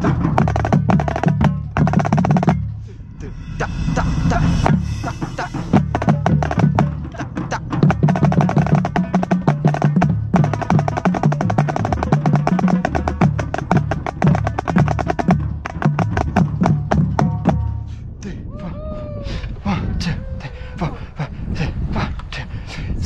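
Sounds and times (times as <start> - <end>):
snare drum: 0.0 - 2.7, 3.9 - 17.8
tenor drums: 0.0 - 17.9.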